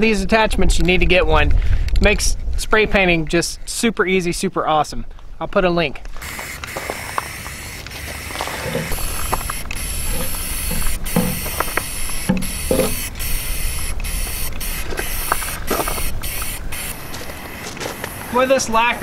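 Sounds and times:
wind rumble on microphone: 0:00.0 - 0:04.5
aerosol spray can hissing: 0:06.2 - 0:18.5.

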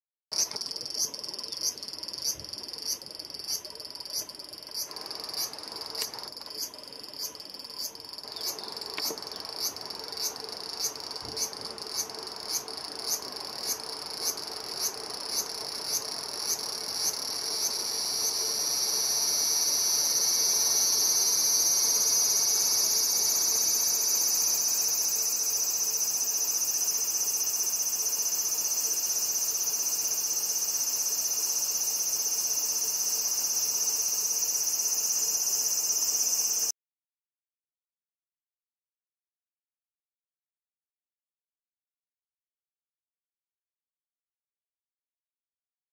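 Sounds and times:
cicada buzzing: 0:00.4 - 0:36.7.

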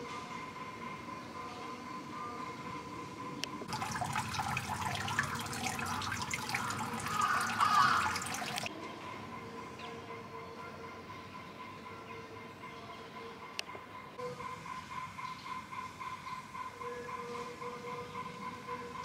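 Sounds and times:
water pouring into stone basin: 0:03.7 - 0:08.7.

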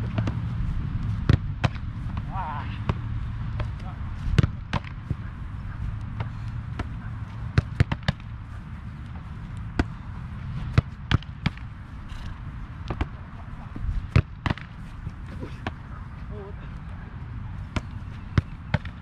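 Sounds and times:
footballs being kicked and caught: 0:00.0 - 0:11.8, 0:12.4 - 0:16.9, 0:17.5 - 0:19.0
steady low rumble: 0:00.0 - 0:19.0.

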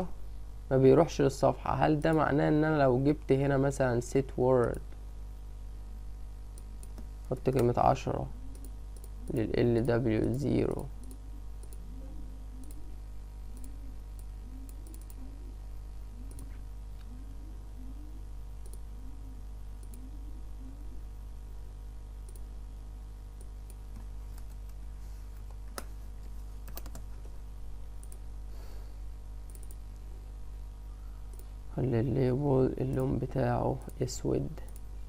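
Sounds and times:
low electrical hum: 0:00.0 - 0:35.0
computer mouse clicks: 0:06.6 - 0:07.7, 0:08.4 - 0:11.9, 0:12.6 - 0:12.9, 0:13.5 - 0:15.3, 0:16.2 - 0:17.1, 0:18.6 - 0:18.9, 0:19.8 - 0:20.1, 0:22.3 - 0:22.5, 0:26.6 - 0:27.3, 0:28.0 - 0:28.2, 0:29.4 - 0:30.1, 0:31.3 - 0:31.5
keyboard keystrokes: 0:26.7 - 0:27.1.

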